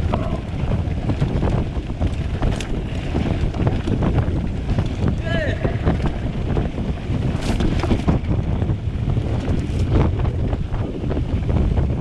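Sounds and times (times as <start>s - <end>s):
bike rattling over bumps: 0.0s - 12.0s
wind buffeting microphone: 0.0s - 12.0s.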